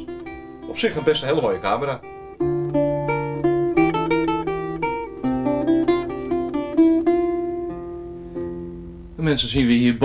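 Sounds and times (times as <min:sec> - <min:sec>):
acoustic guitar melody: 0:00.0 - 0:10.0.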